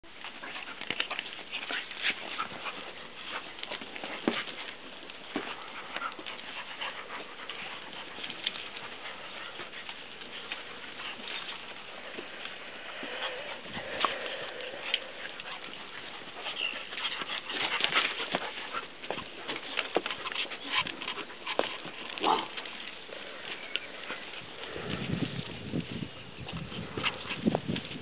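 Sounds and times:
dogs play-fighting: 0.1 - 28.0.

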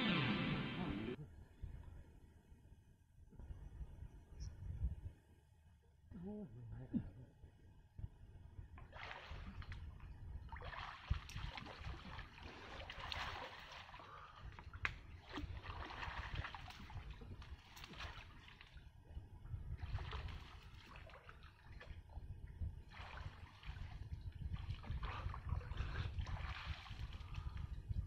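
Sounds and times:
steady low rumble: 0.0 - 8.8
water sloshing and splashing: 8.8 - 28.0.

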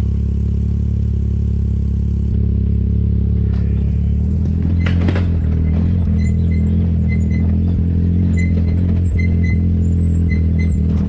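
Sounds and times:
side-by-side engine idling: 0.0 - 11.0
short clatter: 3.4 - 11.0.

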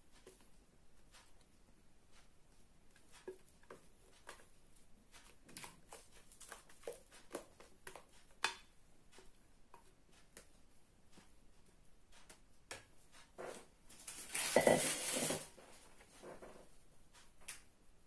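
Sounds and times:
spatula scraping bowl: 14.2 - 15.6.

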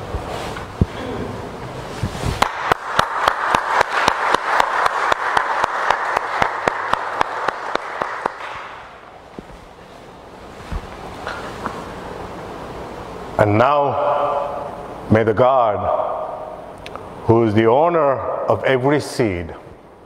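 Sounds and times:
people clapping: 2.4 - 9.3.

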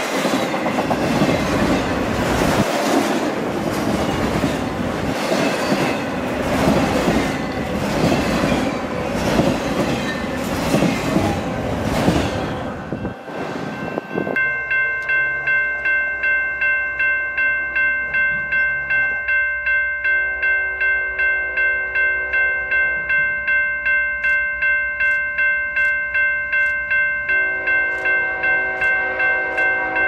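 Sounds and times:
rumble of passing train: 0.0 - 16.6
railroad crossing bell ringing: 0.0 - 30.0
distant locomotive horn: 27.3 - 30.0.

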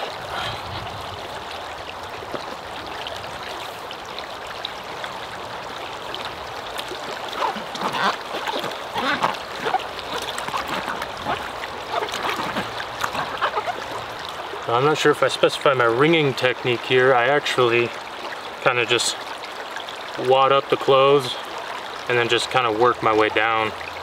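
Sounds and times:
water sloshing in a bucket: 0.0 - 16.1
creek water running: 0.0 - 24.0.

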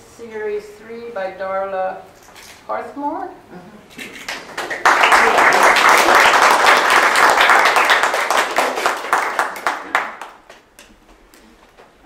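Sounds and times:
audience applauding: 4.3 - 10.9.

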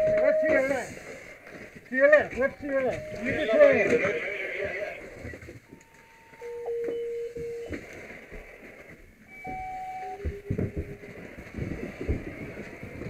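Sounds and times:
electronic beep tones: 0.0 - 0.8, 2.4 - 4.2, 5.2 - 7.8, 9.3 - 11.0
knocks and clunks: 1.6 - 13.0.

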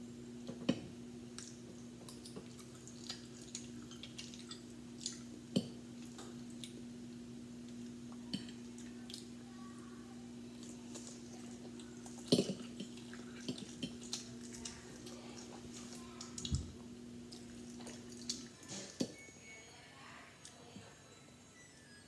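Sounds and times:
steady low hum: 0.0 - 22.0
chewing: 1.4 - 5.4, 6.0 - 6.8, 10.5 - 16.6, 17.3 - 19.0.

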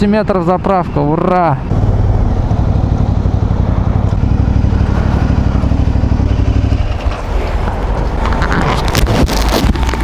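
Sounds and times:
motorcycle engine running: 1.7 - 7.2.

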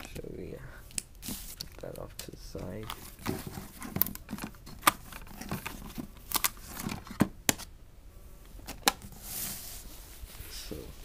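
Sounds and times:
plastic and cardboard rustling: 1.2 - 7.7.

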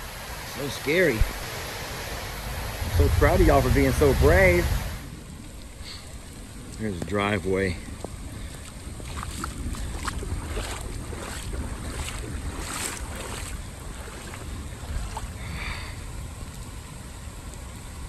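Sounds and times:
heavy rain on water: 0.0 - 18.0
wind on microphone: 2.1 - 5.4, 7.8 - 15.7.

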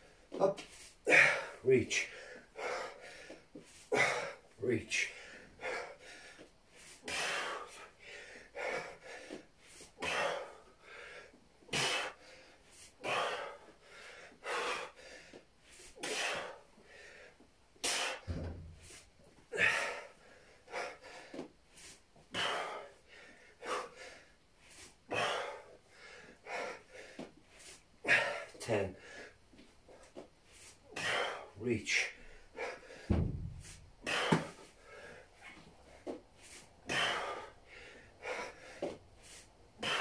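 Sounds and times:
dull low thump: 18.2 - 18.9, 33.1 - 34.6
man exhaling sharply: 33.1 - 34.7.

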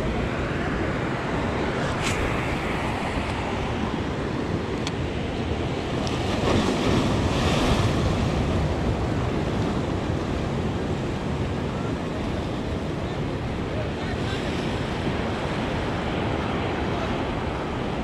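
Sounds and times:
wind buffeting microphone: 0.0 - 13.3
surf breaking over rocks: 1.1 - 9.2.

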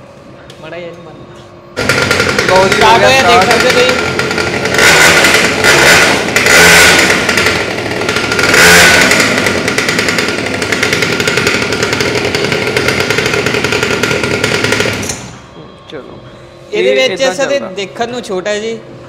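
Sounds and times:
small petrol engine revving: 1.8 - 15.3.

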